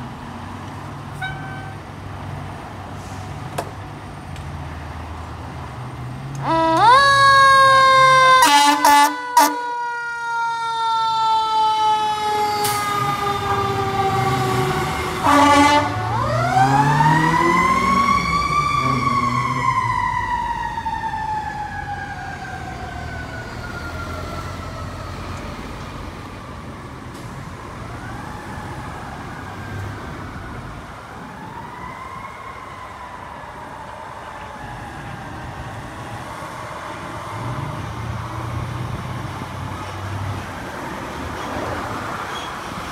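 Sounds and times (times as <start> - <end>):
air horn blasts: 1.2 - 1.8, 6.4 - 7.2, 8.3 - 9.7, 15.2 - 16.2
fire engine siren winding: 6.3 - 25.5.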